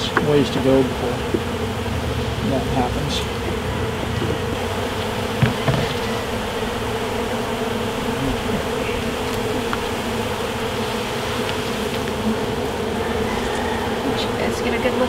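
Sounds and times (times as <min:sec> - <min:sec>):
honey bees buzzing: 0:00.0 - 0:15.0
short knocks: 0:05.3 - 0:06.2.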